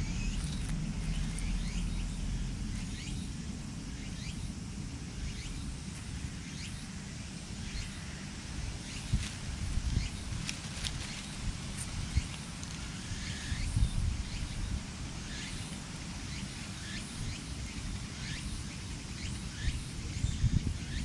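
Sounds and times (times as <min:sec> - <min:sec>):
steady low rumble: 0:00.0 - 0:15.4
small birds chirping: 0:08.8 - 0:21.0.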